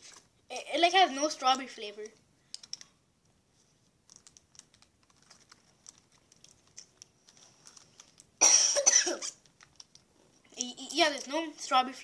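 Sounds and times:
person coughing: 8.4 - 9.4.

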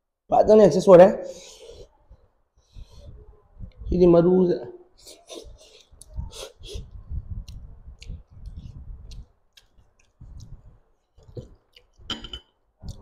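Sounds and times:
mouth clicks: 5.0 - 12.1
chewing food: 5.7 - 12.1.

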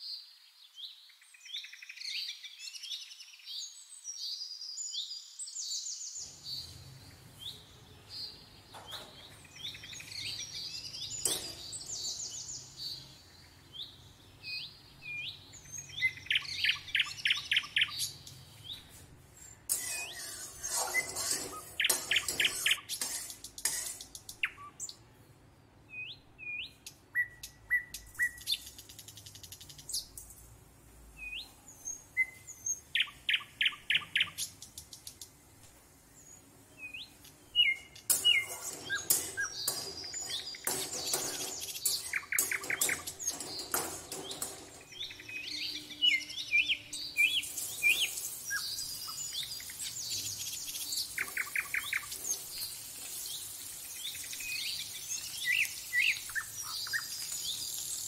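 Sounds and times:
small birds chirping: 0.0 - 30.6, 31.2 - 58.0
seeds frying in hot oil: 19.6 - 24.4, 36.7 - 45.9, 46.8 - 58.0.

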